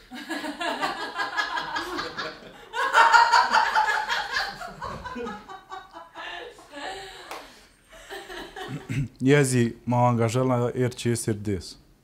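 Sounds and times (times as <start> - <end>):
people laughing: 0.0 - 7.4, 8.0 - 9.1.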